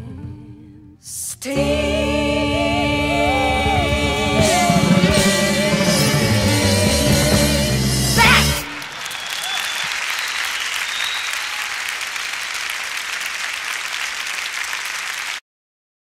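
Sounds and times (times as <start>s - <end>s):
song with singing: 0.0s - 9.4s
audience applauding: 8.2s - 15.4s.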